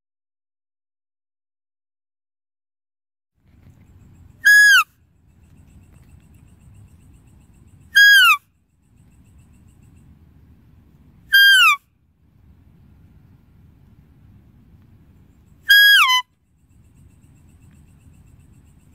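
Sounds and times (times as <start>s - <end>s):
faint low hum: 3.4s - 18.9s
whistle-like deer call: 4.4s - 4.9s, 7.9s - 8.5s, 11.3s - 11.8s, 15.6s - 16.3s.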